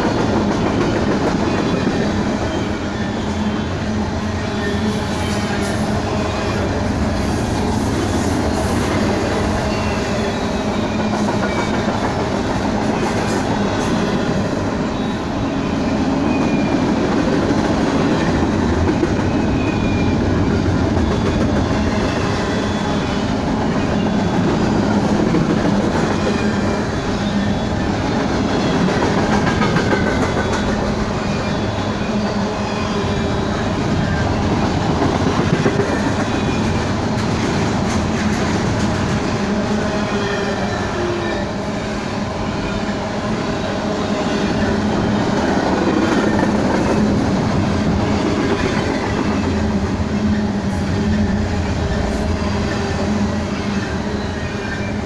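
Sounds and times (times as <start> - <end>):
train wheels rumbling on rails: 0.0 - 55.0.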